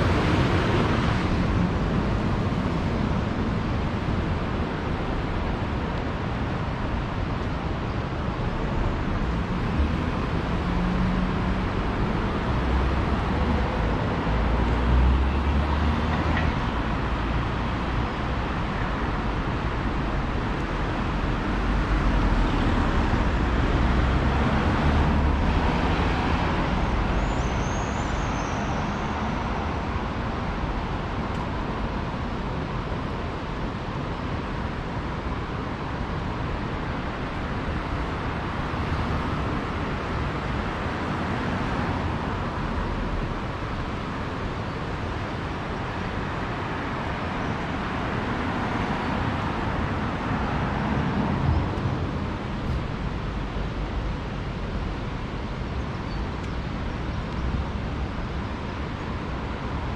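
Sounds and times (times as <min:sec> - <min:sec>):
passing vehicles rumbling: 0:00.0 - 0:59.9
traffic noise: 0:00.0 - 0:59.9.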